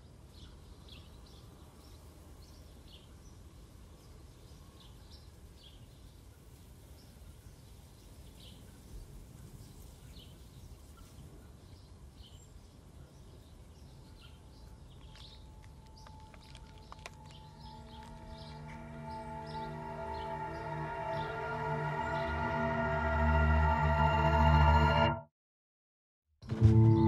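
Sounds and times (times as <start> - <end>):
bird chirps: 9.4 - 23.0.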